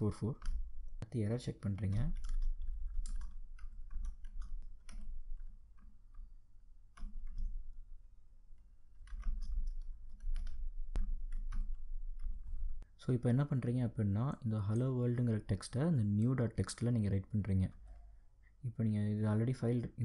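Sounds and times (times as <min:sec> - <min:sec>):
computer keyboard typing: 0:00.0 - 0:00.7, 0:01.5 - 0:06.3, 0:06.9 - 0:07.8, 0:08.9 - 0:12.8.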